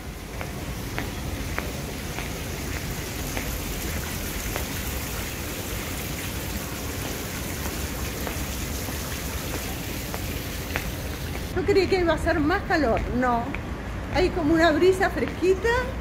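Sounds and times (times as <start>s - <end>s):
fountain water pouring: 0.0s - 11.5s.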